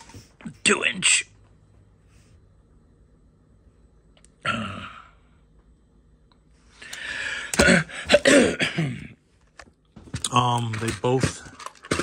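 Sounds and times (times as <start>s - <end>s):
man coughing: 7.5s - 9.2s
man clearing his throat: 7.6s - 9.2s.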